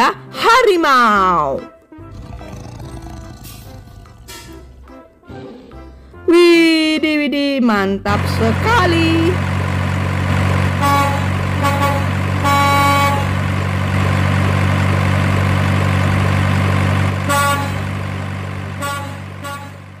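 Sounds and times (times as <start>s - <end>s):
truck engine running: 2.2s - 4.9s, 8.1s - 20.0s
truck horn honks: 10.5s - 13.6s, 17.1s - 20.0s.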